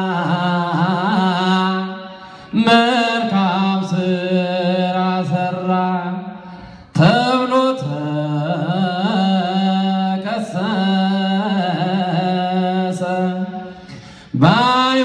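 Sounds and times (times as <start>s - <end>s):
man chanting into a microphone: 0.0s - 15.0s
breath: 2.1s - 2.6s, 6.3s - 7.0s, 13.6s - 14.4s.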